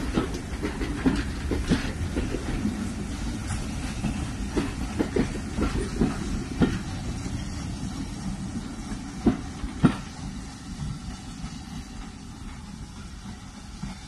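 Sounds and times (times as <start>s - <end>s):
wheels clicking over rail joints: 0.0s - 7.1s
train wheels rumbling on rails: 0.0s - 14.0s.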